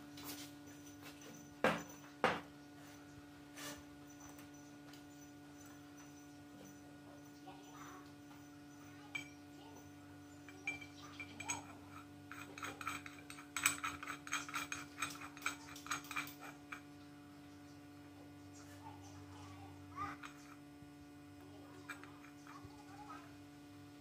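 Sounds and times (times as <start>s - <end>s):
faint steady hum: 0.0s - 24.0s
metal bicycle parts clinking: 9.0s - 9.4s, 10.4s - 16.8s.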